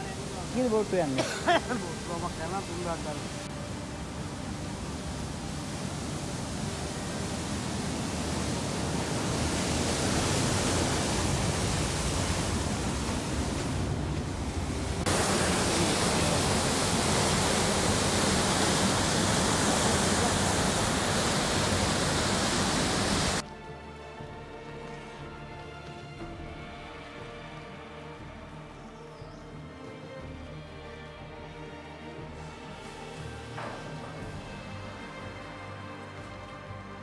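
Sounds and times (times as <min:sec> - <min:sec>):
music: 0:00.0 - 0:12.9, 0:15.0 - 0:37.0
water rushing down rock channel: 0:00.0 - 0:23.4.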